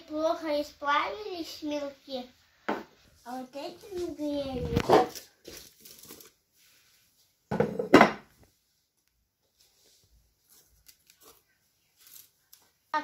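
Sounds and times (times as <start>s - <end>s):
glass knocking on tabletop: 7.5s - 8.2s.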